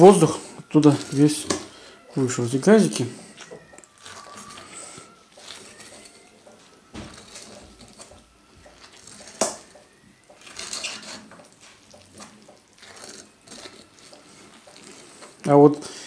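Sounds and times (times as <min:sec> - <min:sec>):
skewer crunching into sauerkraut: 0:03.4 - 0:15.5.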